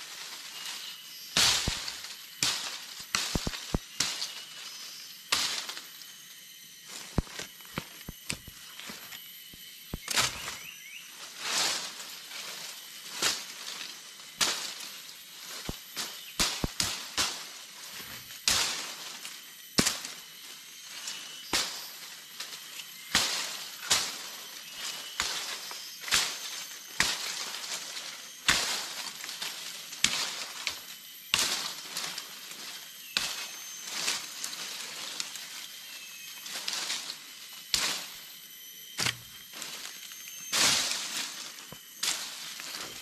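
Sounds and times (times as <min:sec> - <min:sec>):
dead leaves rustling: 0:00.0 - 0:43.0
twigs snapping: 0:01.4 - 0:04.4, 0:06.9 - 0:10.6, 0:39.0 - 0:43.0.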